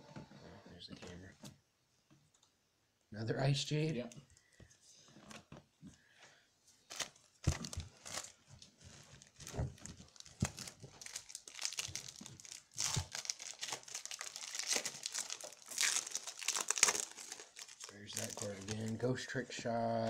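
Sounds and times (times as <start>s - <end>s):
wrapper tearing: 6.9s - 19.0s
foil wrappers crinkling: 6.9s - 19.2s.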